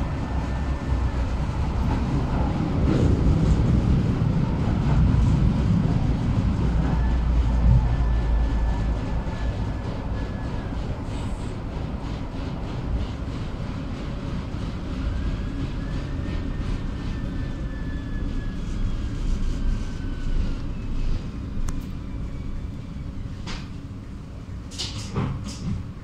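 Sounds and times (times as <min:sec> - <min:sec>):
tram wheels rumbling on rails: 0:00.0 - 0:26.0.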